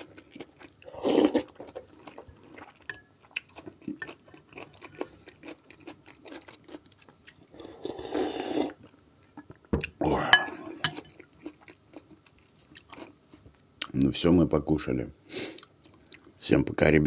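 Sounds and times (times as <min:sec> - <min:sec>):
chewing and mouth noises: 0:00.0 - 0:07.9, 0:08.7 - 0:14.0
person slurping: 0:00.8 - 0:01.6, 0:07.5 - 0:08.8.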